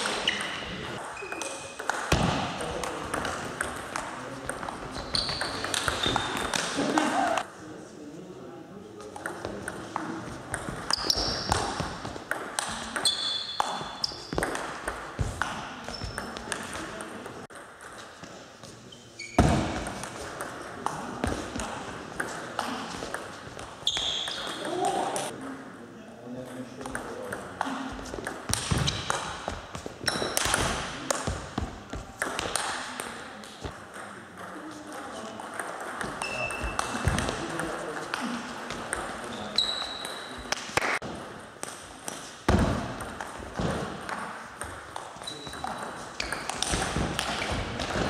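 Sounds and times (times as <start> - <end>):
shoes squeaking on floor: 0.0 - 1.9, 4.8 - 7.4, 10.8 - 12.2, 12.9 - 14.5, 15.8 - 16.5, 18.7 - 19.9, 23.4 - 25.3, 29.7 - 30.4, 36.2 - 37.2, 39.2 - 40.6, 45.2 - 48.0.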